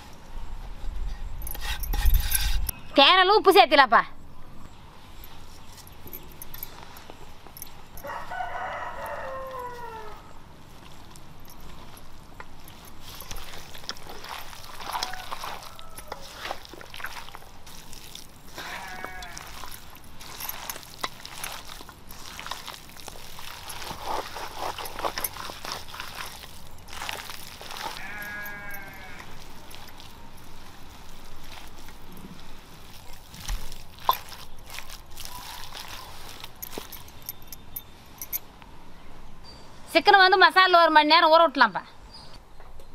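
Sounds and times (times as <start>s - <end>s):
rooster crowing: 8.0s - 10.4s, 14.8s - 16.4s
farm animal calls: 8.1s - 10.4s, 27.8s - 29.4s.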